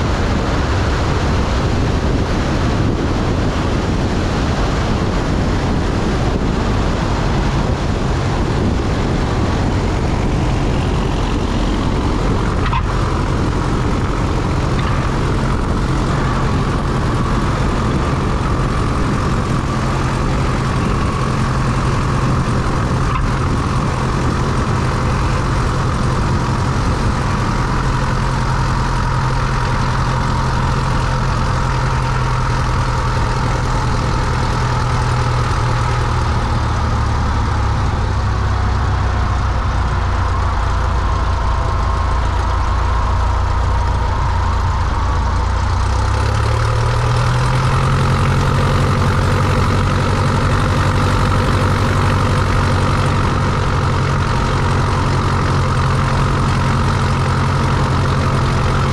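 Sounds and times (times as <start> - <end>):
propeller plane engine idling: 0.0 - 58.9.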